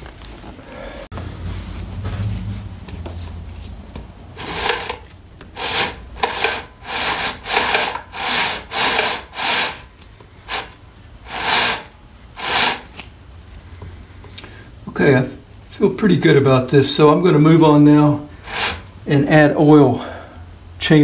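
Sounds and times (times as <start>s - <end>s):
hand scraping along chainsaw chain: 4.4s - 5.0s, 5.6s - 9.9s, 10.5s - 13.0s.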